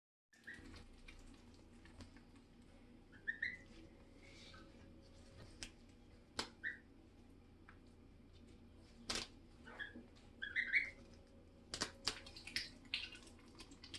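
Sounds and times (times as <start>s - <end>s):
goslings peeping: 3.1s - 3.7s, 6.6s - 6.9s, 9.6s - 11.0s.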